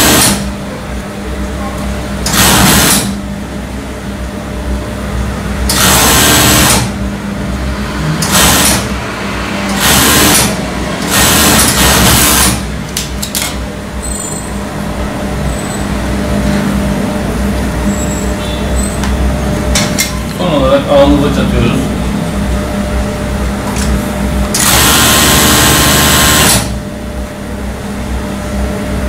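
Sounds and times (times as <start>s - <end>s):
overlock machine stitching: 0.0s - 0.5s, 2.2s - 3.2s, 5.7s - 7.0s, 8.2s - 9.0s, 9.6s - 14.2s, 23.7s - 26.8s
steady machine hum: 0.0s - 29.0s.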